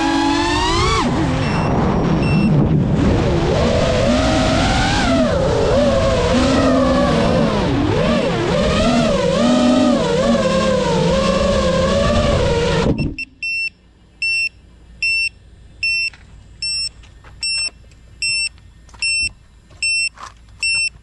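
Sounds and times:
quadcopter motors humming: 0:00.0 - 0:20.1
high electronic beeps: 0:00.6 - 0:02.7, 0:12.9 - 0:21.0.

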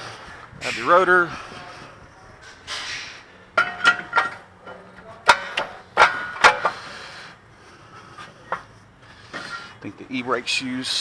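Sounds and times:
metal clanks and clinks: 0:02.4 - 0:06.8.

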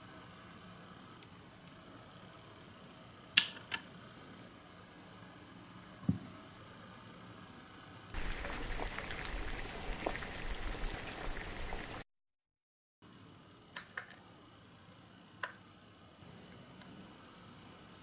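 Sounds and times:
crackling bubbling boiling sound: 0:08.1 - 0:12.0.

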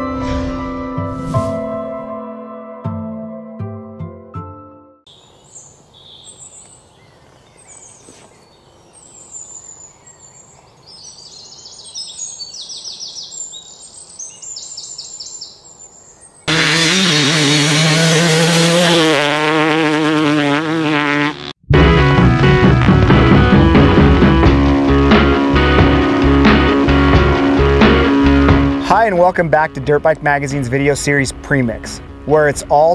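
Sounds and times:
birds chirping: 0:05.1 - 0:21.2
dirt bike engine revving: 0:16.5 - 0:28.9.

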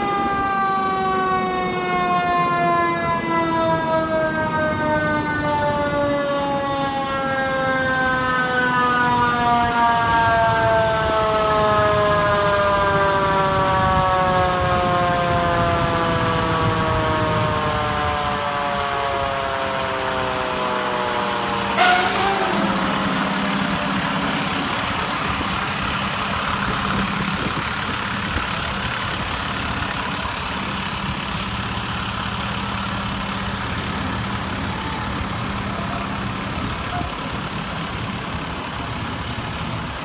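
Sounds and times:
diesel engine idling: 0:10.0 - 0:40.0
falling whine: 0:11.1 - 0:39.2
sharp hiss of released air: 0:21.8 - 0:22.9.

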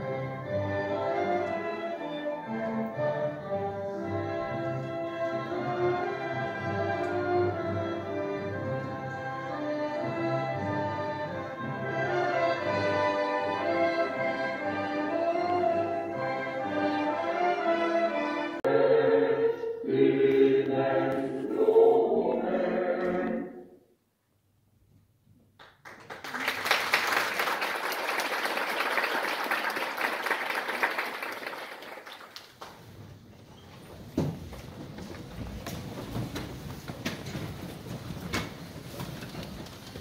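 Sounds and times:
choir with orchestra: 0:00.0 - 0:23.9
audience applause: 0:25.6 - 0:32.8.

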